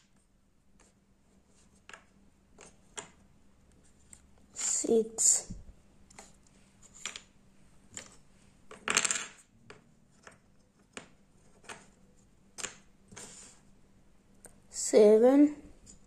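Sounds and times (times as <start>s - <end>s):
wooden puzzle pieces clicking: 12.6s - 13.3s.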